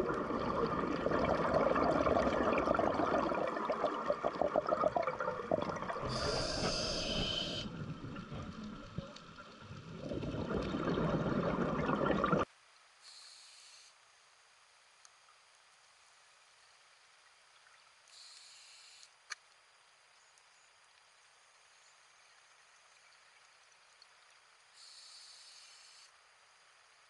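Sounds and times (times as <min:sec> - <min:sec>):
exhaled bubbles underwater: 0:00.0 - 0:12.5
regulator hissing inhale: 0:06.0 - 0:07.8.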